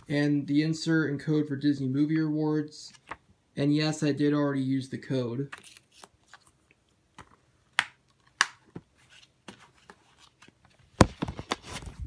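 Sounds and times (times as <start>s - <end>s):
paper rustling: 5.5s - 6.6s, 8.9s - 12.0s.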